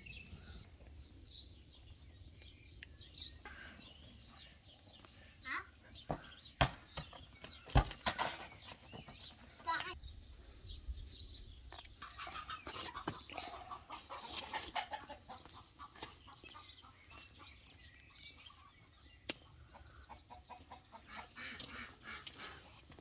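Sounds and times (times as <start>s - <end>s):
chickens clucking: 12.0s - 23.0s.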